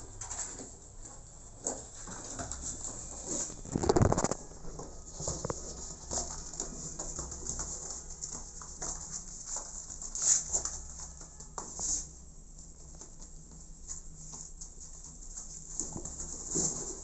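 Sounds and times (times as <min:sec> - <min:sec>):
kitten paws scratching cardboard: 0:00.2 - 0:17.0
cardboard rustling: 0:01.7 - 0:12.1.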